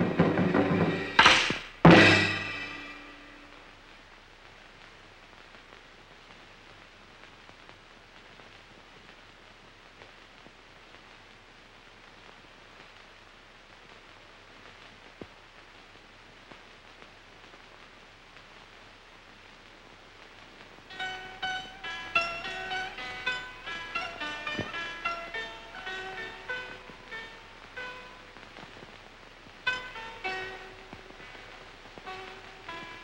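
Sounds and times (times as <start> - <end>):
music with short high notes: 0.0 - 3.6, 20.9 - 28.4, 29.7 - 33.0
film soundtrack hiss: 0.0 - 33.0.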